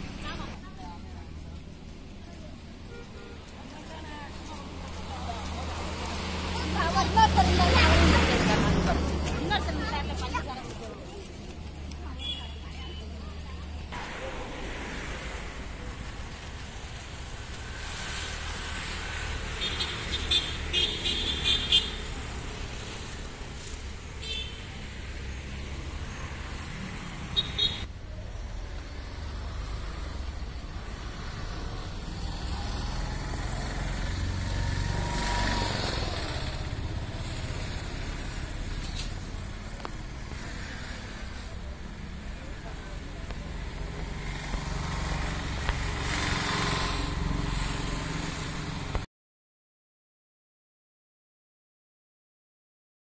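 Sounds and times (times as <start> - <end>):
road traffic rumble: 0.0 - 49.1
vehicle passing: 3.8 - 12.0, 28.3 - 49.0.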